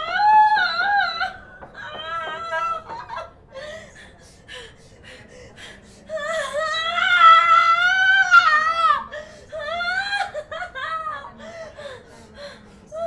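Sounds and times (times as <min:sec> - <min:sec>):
woman wailing: 0:00.0 - 0:03.3.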